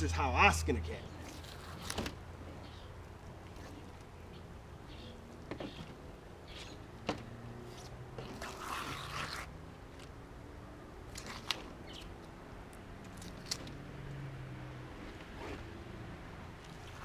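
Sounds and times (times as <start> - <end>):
scraping tearing rustle: 1.2 - 2.7, 7.6 - 10.1, 11.1 - 12.3, 13.0 - 13.8, 15.0 - 15.8, 16.6 - 17.0.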